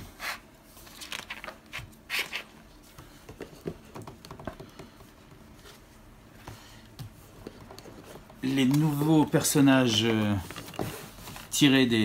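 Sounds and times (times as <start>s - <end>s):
booklet pages turning: 0.8s - 2.5s.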